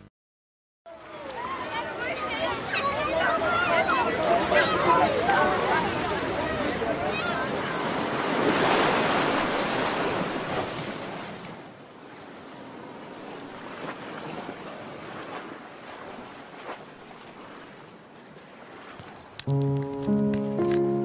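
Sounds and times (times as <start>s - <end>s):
ocean waves washing onto beach: 0.9s - 21.0s.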